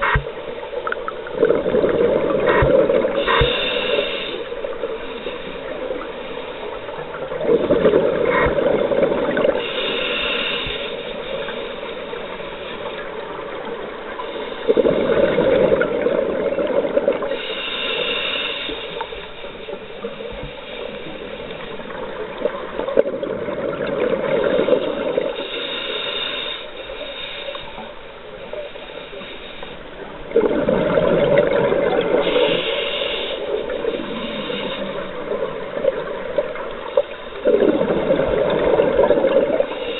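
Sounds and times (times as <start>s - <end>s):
exhaled bubbles rushing: 1.3s - 3.4s, 7.3s - 9.6s, 14.8s - 17.3s, 30.2s - 32.4s, 37.4s - 39.8s
regulator inhale hiss: 3.0s - 7.4s, 9.4s - 15.3s, 17.2s - 22.5s, 24.4s - 30.4s, 32.0s - 37.5s, 38.4s - 39.9s.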